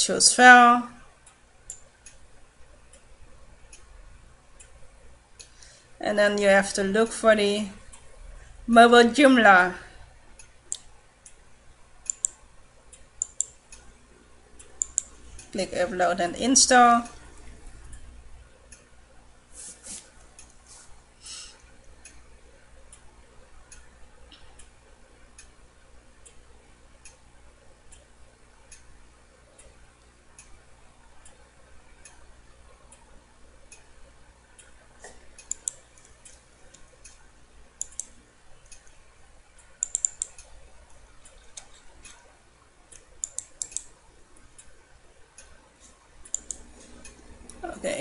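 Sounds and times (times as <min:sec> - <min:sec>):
low hum: 0:00.0 - 0:19.5
mouse clicks: 0:12.0 - 0:12.4, 0:13.0 - 0:13.9, 0:14.6 - 0:15.5, 0:35.4 - 0:37.2, 0:37.8 - 0:39.0, 0:39.8 - 0:42.3, 0:42.9 - 0:43.9, 0:46.2 - 0:47.2
faint ticks: 0:12.0 - 0:14.0, 0:14.6 - 0:15.6, 0:19.9 - 0:47.6.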